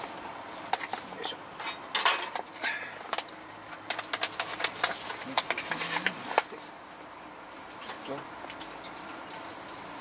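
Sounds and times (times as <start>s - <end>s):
metal cookware clinking: 1.6s - 2.4s.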